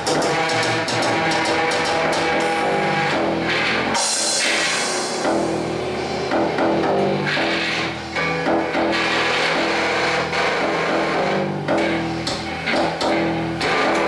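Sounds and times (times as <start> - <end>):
electric guitar droning notes: 0.0 - 14.0
burst of hissing noise: 4.0 - 6.3.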